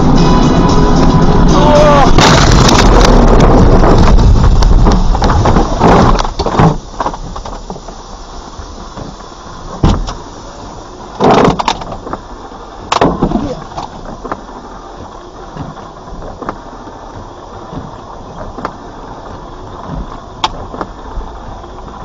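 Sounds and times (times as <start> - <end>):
vehicle crash: 0.0 - 7.6
low steady vehicle noise: 0.0 - 22.0
metal crunching and scraping: 2.1 - 6.8.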